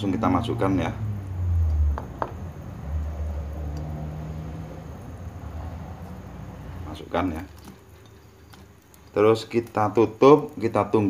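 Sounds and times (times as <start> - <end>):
low hum: 0.2 - 7.7
eggs tapping into a pot: 1.9 - 2.4.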